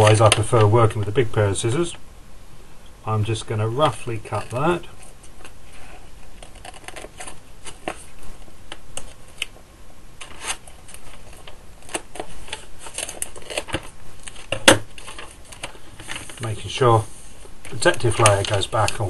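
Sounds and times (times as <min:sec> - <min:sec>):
foam sheets crinkling and clicking: 0:00.0 - 0:01.1, 0:03.9 - 0:09.6, 0:10.2 - 0:16.8, 0:17.6 - 0:19.0.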